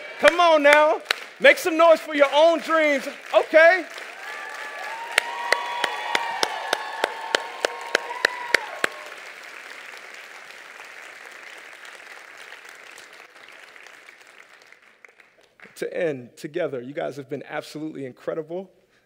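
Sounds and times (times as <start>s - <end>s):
audience applause: 0.0s - 15.5s
crowd cheering and shouting: 4.2s - 9.2s.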